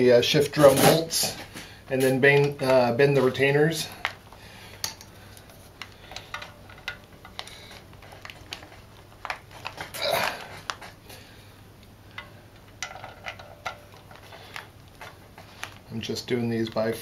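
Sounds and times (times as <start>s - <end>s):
scraping rustle: 0.5s - 2.4s.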